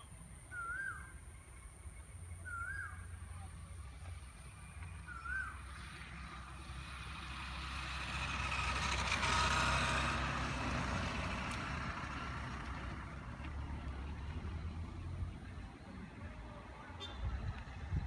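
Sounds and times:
vehicle driving past: 0:04.2 - 0:18.0.

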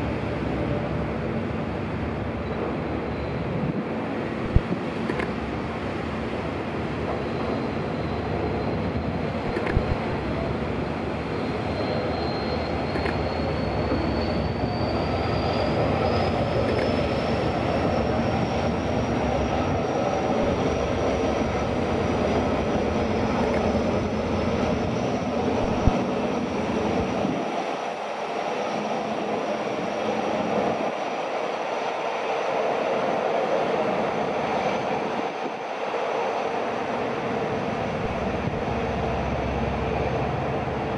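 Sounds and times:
ferry diesel engines rumbling: 0:00.0 - 0:27.7, 0:36.6 - 0:40.9.

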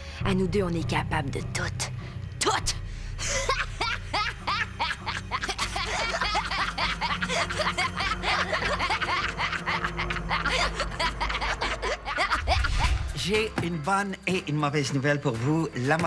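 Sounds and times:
low background music: 0:00.0 - 0:16.0
woman laughing hard: 0:03.2 - 0:13.0.

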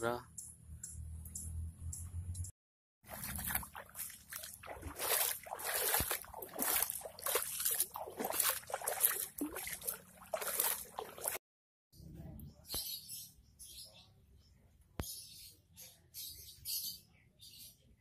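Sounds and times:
footsteps splashing through shallow water: 0:03.0 - 0:11.4
flowing river: 0:03.1 - 0:11.4.

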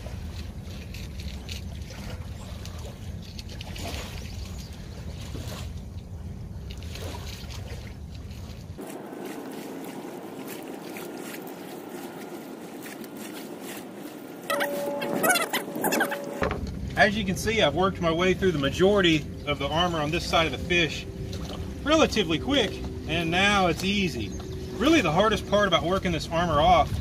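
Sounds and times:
water lapping: 0:00.0 - 0:27.0
wind rumbling on microphone: 0:14.9 - 0:27.0.

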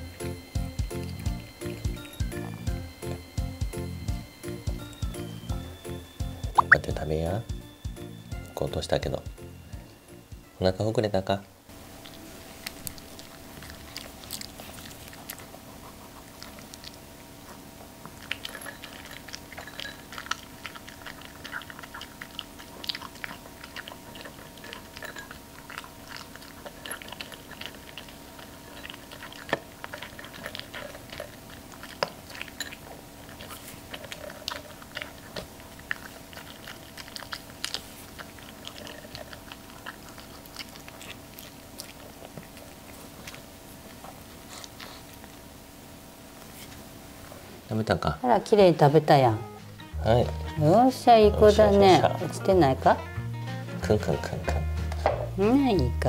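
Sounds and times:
dog chewing kibble: 0:00.0 - 0:07.7, 0:11.7 - 0:47.4, 0:48.4 - 0:56.0
kibble rattling against bowl: 0:18.2 - 0:37.6, 0:38.2 - 0:41.0.

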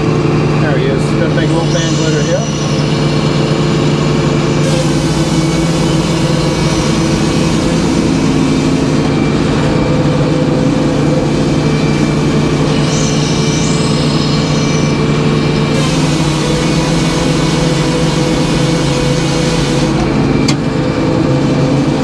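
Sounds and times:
circular saw blade humming: 0:00.8 - 0:20.5
hiss of saw cutting log: 0:01.5 - 0:09.0, 0:15.7 - 0:20.0.

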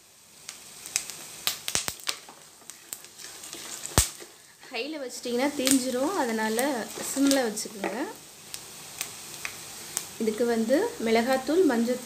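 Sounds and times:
peanuts sizzling in hot oil: 0:00.0 - 0:12.0
sharp pops and crackles: 0:00.4 - 0:04.5, 0:05.5 - 0:10.2.

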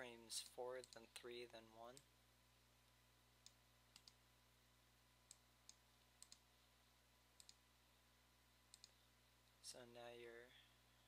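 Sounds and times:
faint mouse clicks: 0:00.4 - 0:01.2, 0:03.4 - 0:04.2, 0:05.2 - 0:06.5, 0:07.4 - 0:07.6, 0:08.7 - 0:09.6.

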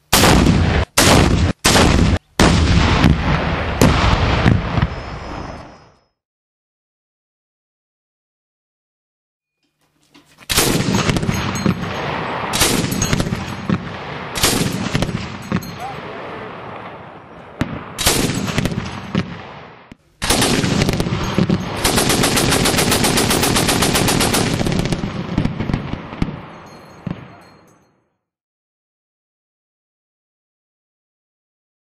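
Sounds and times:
rapid automatic cannon fire: 0:00.1 - 0:05.8, 0:10.5 - 0:15.8, 0:17.6 - 0:27.2
cannon single shots with echo: 0:00.1 - 0:05.9, 0:10.5 - 0:27.3.

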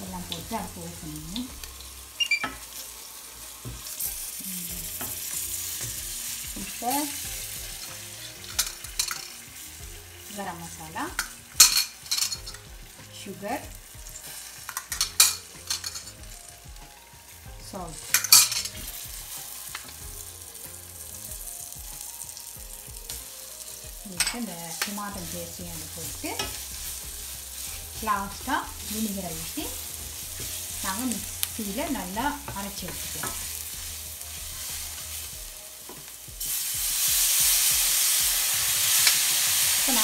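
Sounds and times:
spices sizzling in oil: 0:00.0 - 0:40.0
wooden spoon stirring in pan: 0:22.9 - 0:37.7.

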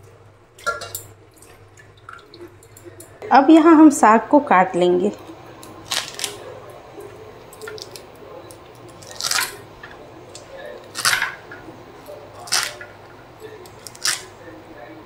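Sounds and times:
scissors snipping greens: 0:05.6 - 0:06.4, 0:12.4 - 0:12.8, 0:13.6 - 0:14.3.

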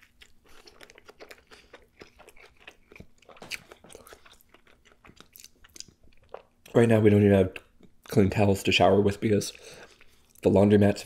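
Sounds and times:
chewing with crunches: 0:00.0 - 0:06.8, 0:09.5 - 0:10.5.

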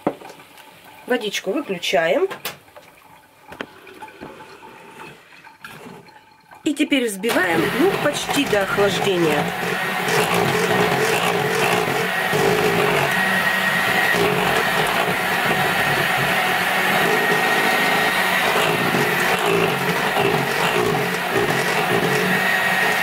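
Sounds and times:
electric hand mixer whipping: 0:07.2 - 0:23.0.

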